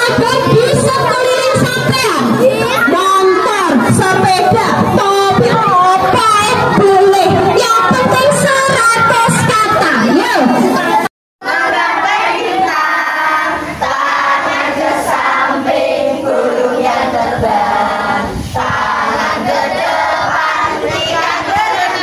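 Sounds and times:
children singing in chorus: 0:10.6 - 0:22.0.

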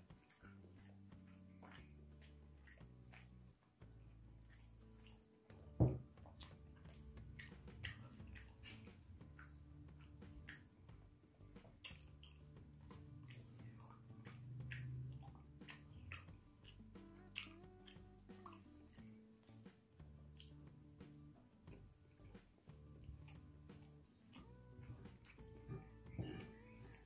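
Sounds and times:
wet chewing and smacking: 0:00.0 - 0:27.0
dull thump: 0:05.8 - 0:06.0.

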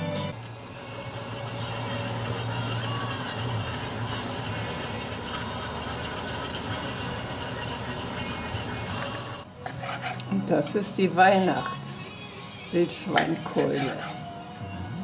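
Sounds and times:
pot simmering and bubbling: 0:00.3 - 0:10.3.

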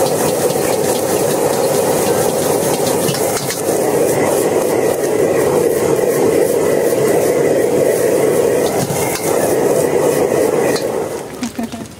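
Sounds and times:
gas burner roaring: 0:00.0 - 0:11.9.

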